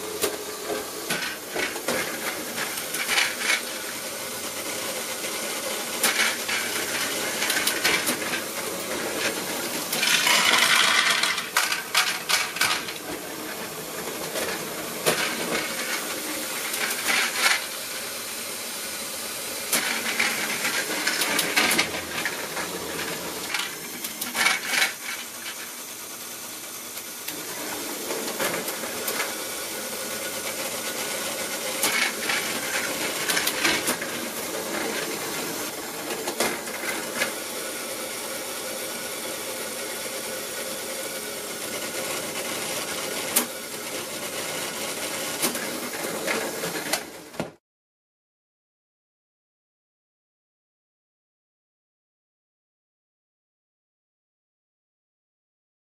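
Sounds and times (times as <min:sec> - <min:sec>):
plastic gears whirring: 0:00.1 - 0:17.8, 0:19.7 - 0:29.5, 0:30.1 - 0:37.4
plastic parts clicking and clattering: 0:00.2 - 0:03.7, 0:06.0 - 0:08.5, 0:09.2 - 0:13.2, 0:16.6 - 0:17.7, 0:19.7 - 0:22.7, 0:23.4 - 0:25.7, 0:31.8 - 0:34.2.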